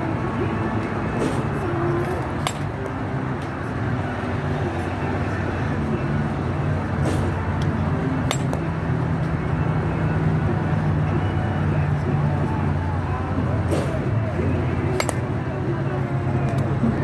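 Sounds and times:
low mechanical hum: 0.0s - 17.0s
balls striking cage: 1.1s - 3.0s, 6.9s - 8.8s, 14.9s - 15.4s
bat hitting softball: 8.2s - 8.7s, 14.9s - 15.3s.

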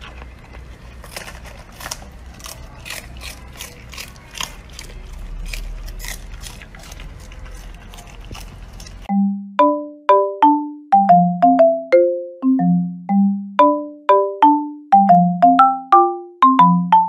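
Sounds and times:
puppy crunching cabbage leaves: 0.0s - 9.1s.

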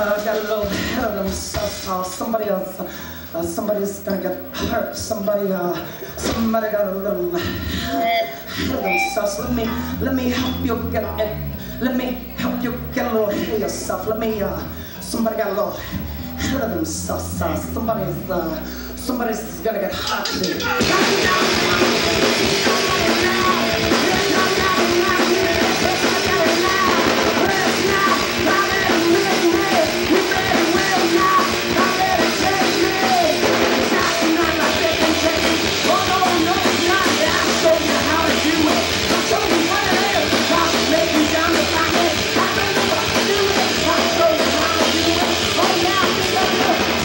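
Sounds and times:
drum kit: 0.0s - 2.7s, 7.4s - 47.0s
bass guitar: 0.0s - 47.0s
person singing: 7.2s - 13.7s, 19.9s - 47.0s
electric guitar: 7.4s - 47.0s.

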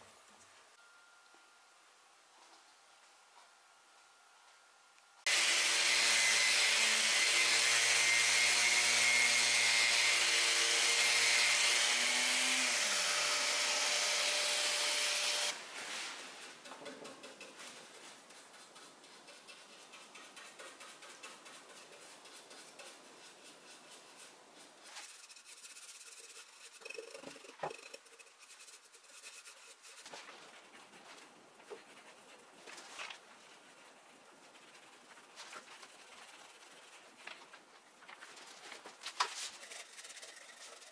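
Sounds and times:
power tool hissing: 5.3s - 15.6s
scratching and rubbing on wood: 16.4s - 40.9s.

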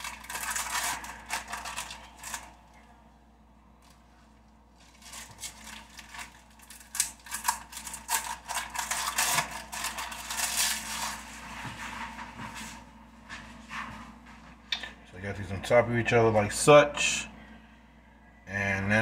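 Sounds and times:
plastic wrapping crinkling: 0.0s - 3.0s, 4.7s - 12.8s.

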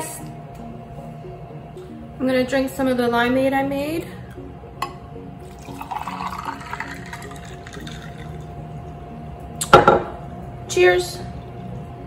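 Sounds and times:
liquid pouring into glass: 5.4s - 8.6s.

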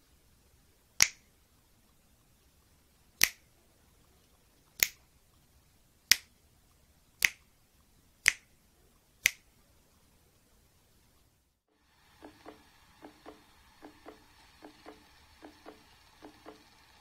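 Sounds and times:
finger snapping: 1.0s - 1.2s, 7.2s - 7.4s, 8.2s - 8.5s, 9.2s - 9.5s.

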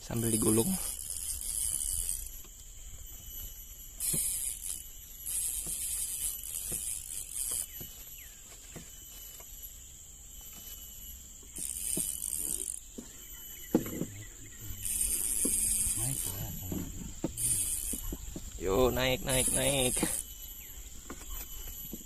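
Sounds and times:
insects buzzing: 0.0s - 22.0s
hissing insect bursts: 0.2s - 7.8s, 14.7s - 20.4s.

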